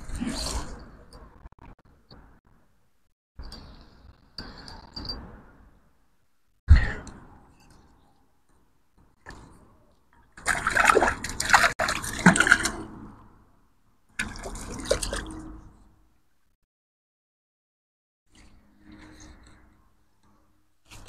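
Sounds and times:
water splashing and sloshing: 9.2 - 13.5, 14.1 - 16.0.

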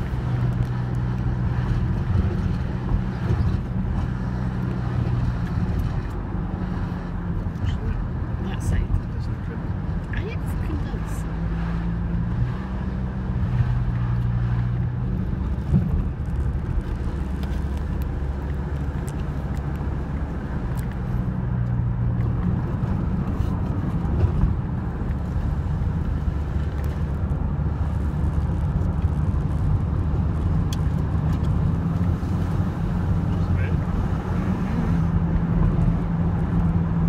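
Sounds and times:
car engine drone: 0.0 - 37.0
tyre rumble on road: 11.7 - 37.0.

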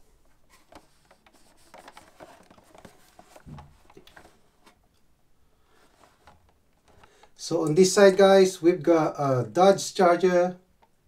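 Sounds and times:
plastic packaging crinkling and clicking: 0.2 - 5.0.

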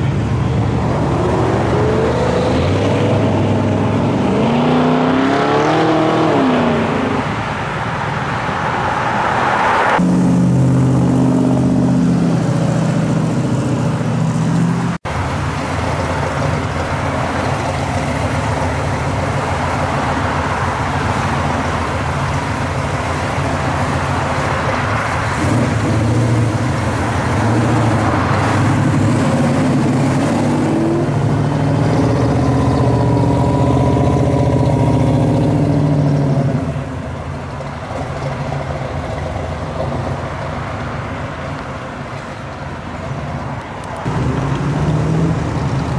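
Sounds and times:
cars driving past: 0.0 - 45.9.

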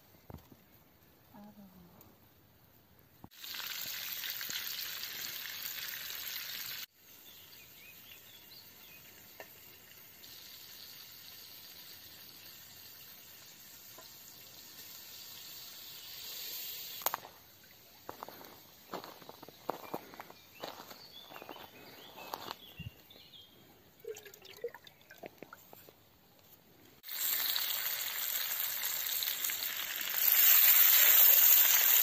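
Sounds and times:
food sizzling in a pan: 3.3 - 19.6, 27.0 - 32.0
loud steady hiss: 3.4 - 19.8.

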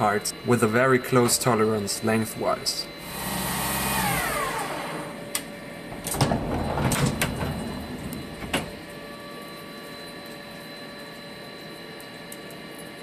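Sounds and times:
faint machine hum: 0.0 - 13.0
sliding guard door clunks: 5.9 - 8.8.

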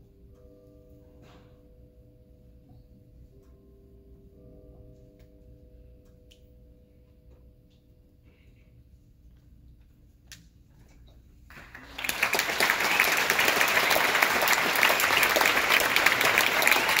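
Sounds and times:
audience applause: 11.5 - 17.0.

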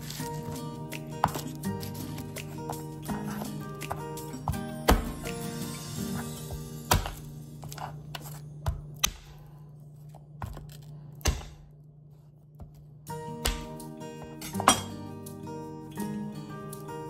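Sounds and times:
faint background music: 0.0 - 11.7, 13.0 - 17.0
knife knocks and thuds: 1.2 - 5.4, 6.9 - 9.4, 13.4 - 13.8.

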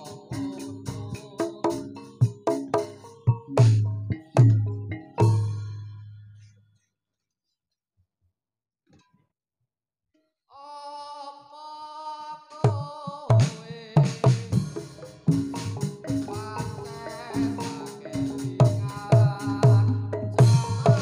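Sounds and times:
dance music with drums: 0.0 - 5.7, 12.7 - 21.0.

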